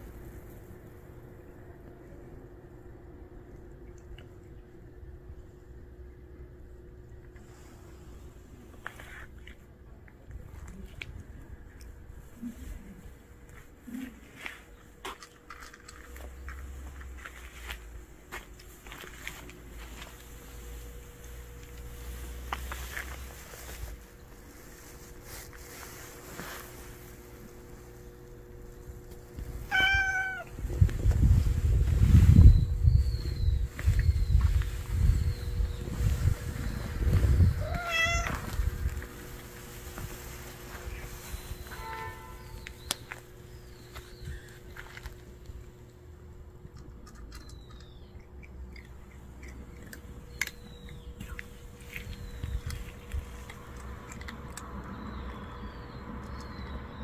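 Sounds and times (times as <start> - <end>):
cat crunching dry kibble: 14.0 - 17.4, 18.5 - 30.6, 42.6 - 56.5
cat meowing: 29.7 - 30.6, 37.6 - 38.5.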